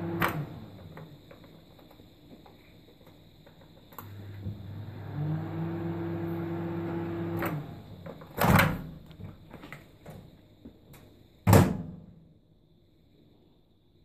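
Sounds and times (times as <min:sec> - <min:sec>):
microwave oven humming: 0:00.0 - 0:01.2, 0:03.8 - 0:08.4.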